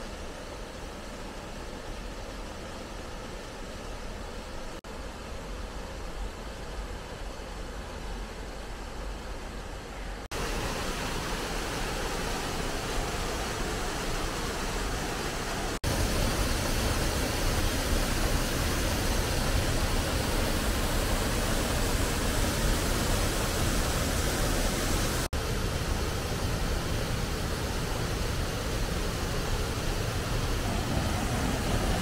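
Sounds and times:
waterfall rushing: 10.3s - 32.0s.

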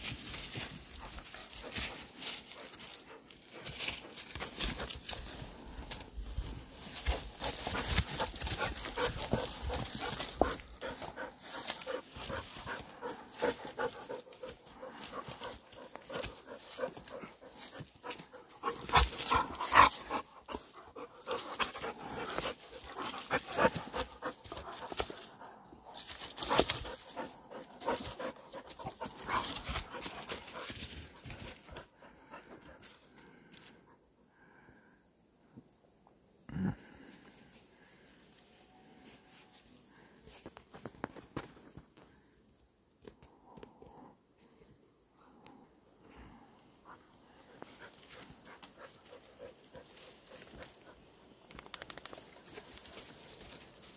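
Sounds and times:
dogs panting: 0.4s - 33.3s, 46.1s - 51.5s.

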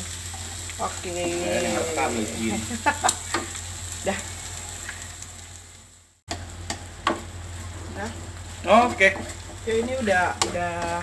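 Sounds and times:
food sizzling in a wok: 0.0s - 11.0s
spatula stirring and scraping: 7.6s - 11.0s.

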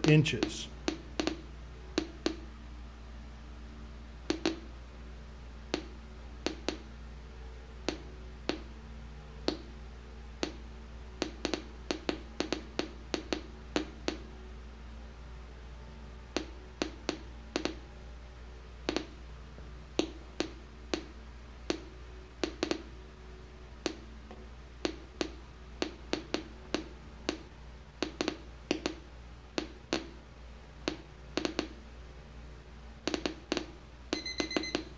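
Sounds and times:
geiger counter clicking: 33.1s - 34.9s.

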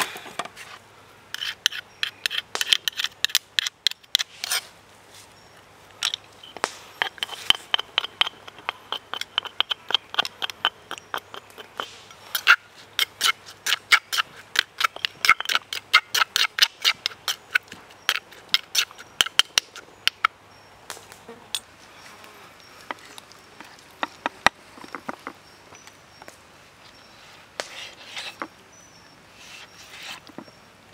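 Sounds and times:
spoon clinking and scraping in mortar: 6.4s - 11.6s.

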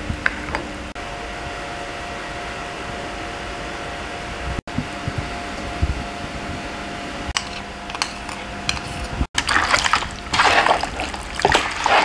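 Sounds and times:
steady hum: 0.0s - 12.0s
wet squelching of meat in marinade: 9.4s - 12.0s.

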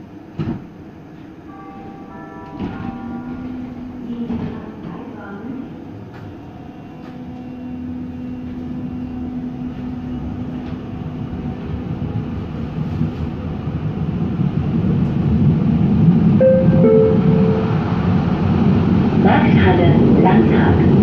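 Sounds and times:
light-rail car motor hum: 0.0s - 21.0s
short higher tones: 16.4s - 18.3s.

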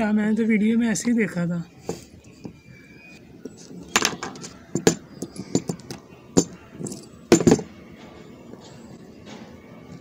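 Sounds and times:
pliers clinking against padlock: 3.6s - 7.7s.

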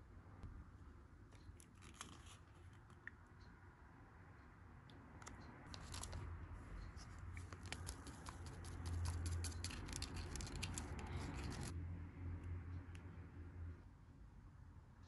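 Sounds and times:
plastic spoon scraping: 5.7s - 11.7s.

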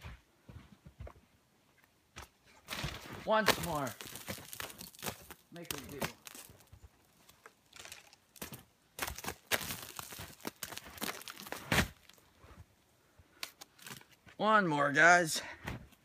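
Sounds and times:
footsteps crunching in snow: 2.6s - 6.8s, 7.7s - 12.2s.

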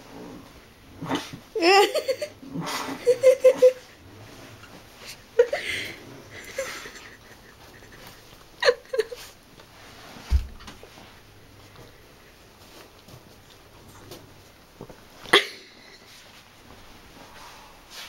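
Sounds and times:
person laughing: 1.6s - 3.9s, 5.4s - 9.4s.

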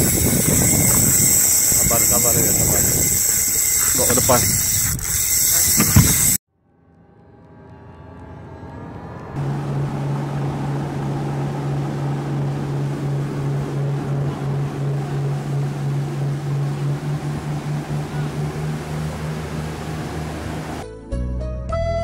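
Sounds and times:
motorboat engine running: 0.0s - 6.4s, 9.1s - 20.8s
water rushing: 9.4s - 20.8s.

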